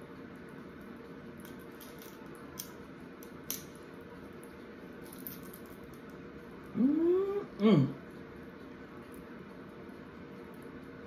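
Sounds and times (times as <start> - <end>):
crab shell cracking: 1.4 - 3.7.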